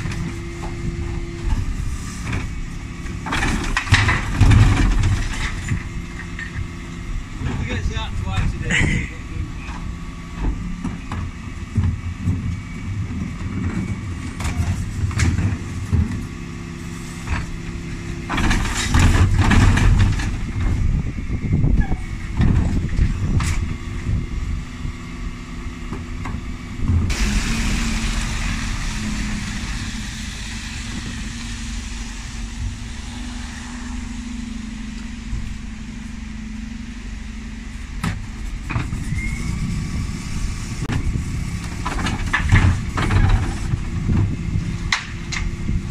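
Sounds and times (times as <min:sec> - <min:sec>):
lorry engine running: 0:00.0 - 0:45.9
steady hum: 0:16.5 - 0:41.9.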